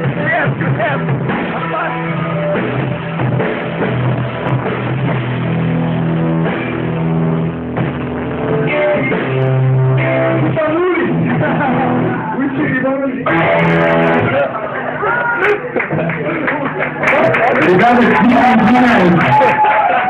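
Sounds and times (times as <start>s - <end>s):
drum kit: 0.0s - 14.5s
rock band playing loud: 0.0s - 20.0s.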